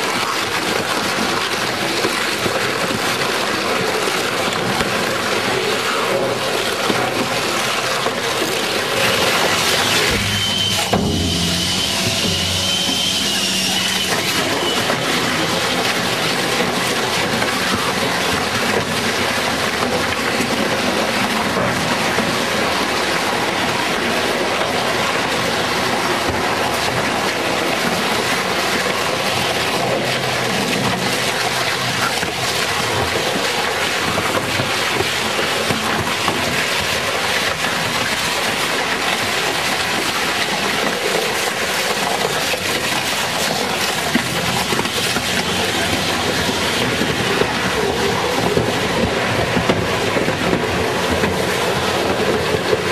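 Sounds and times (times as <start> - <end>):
shredder cutting tyres: 6.1 - 22.7.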